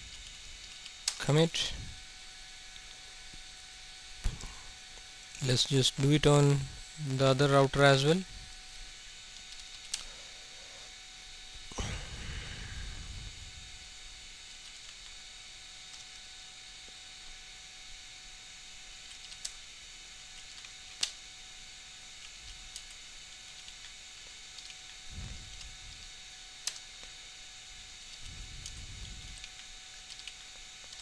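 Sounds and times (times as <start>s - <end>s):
steady hiss and electrical hum: 0.0s - 31.0s.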